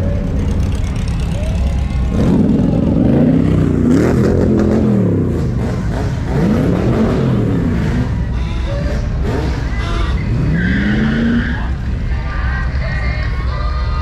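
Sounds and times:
low engine rumble: 0.0s - 14.0s
engine revving: 2.0s - 11.8s.

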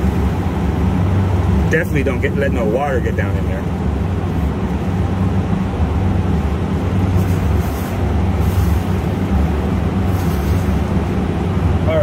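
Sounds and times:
machinery hum and rumble: 0.0s - 12.0s.

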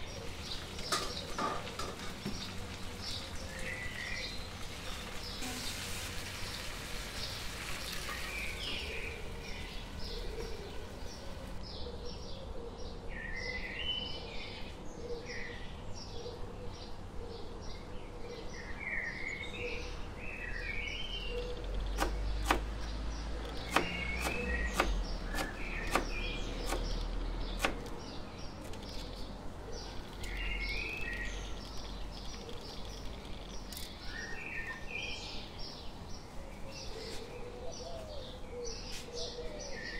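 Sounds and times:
small birds chirping: 0.0s - 39.9s
sharp clicks: 21.6s - 28.0s.

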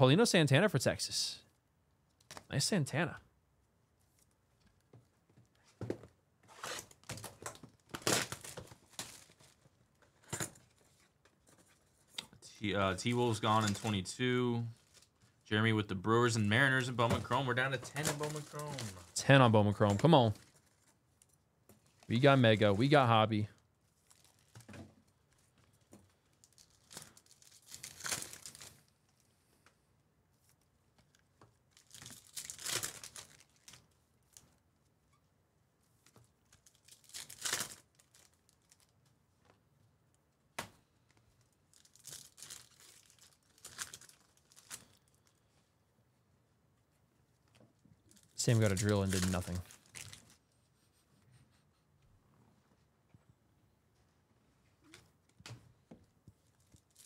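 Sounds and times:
plastic shrink wrap crinkling: 6.5s - 12.1s, 17.4s - 22.2s, 23.9s - 29.2s, 30.5s - 34.6s, 36.4s - 39.1s, 41.3s - 45.5s, 47.4s - 50.5s, 56.4s - 57.0s.

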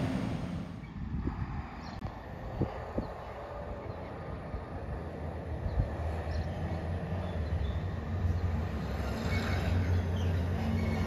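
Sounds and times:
garbage truck diesel engine: 0.0s - 0.8s.

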